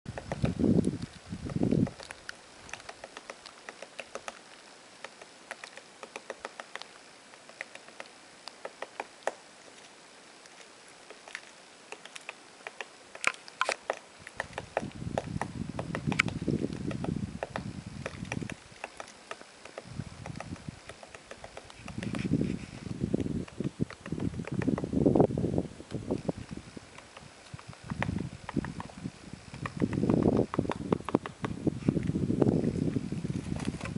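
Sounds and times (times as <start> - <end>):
woodpecker tapping on bark: 0.1 - 25.2, 25.9 - 33.9.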